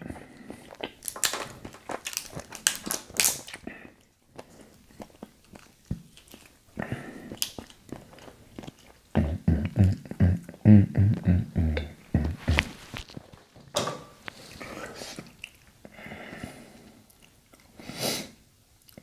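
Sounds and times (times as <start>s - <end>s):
lobster shell cracking: 0.7s - 3.6s, 5.1s - 6.6s, 7.4s - 9.0s.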